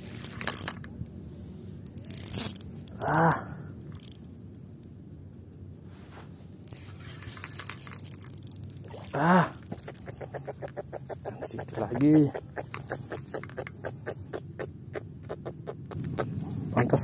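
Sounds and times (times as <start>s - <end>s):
fishing reel clicking: 1.9s - 3.2s, 3.9s - 4.2s, 7.2s - 9.0s.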